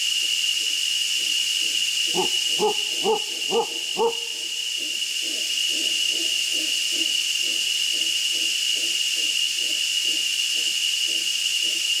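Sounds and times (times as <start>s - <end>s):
high-pitched insect drone: 0.0s - 12.0s
monkey low grunts: 2.1s - 4.5s.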